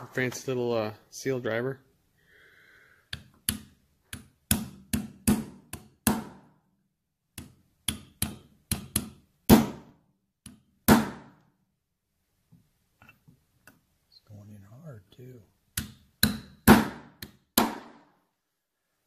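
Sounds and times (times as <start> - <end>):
hammer tapping metal: 7.4 - 9.2.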